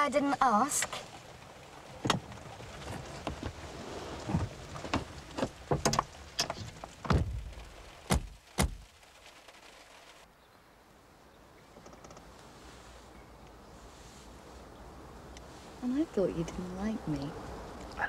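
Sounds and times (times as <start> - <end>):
rain on a car body: 0.0 - 10.3
car door knocks and clunks: 7.0 - 7.4.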